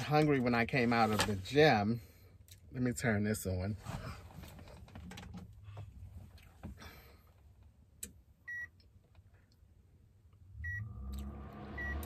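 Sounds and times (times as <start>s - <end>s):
short high beep: 11.8s - 12.0s.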